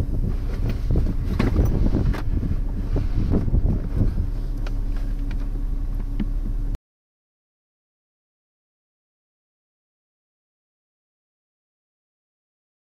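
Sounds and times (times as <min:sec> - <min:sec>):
strong wind buffeting microphone: 0:00.0 - 0:06.8.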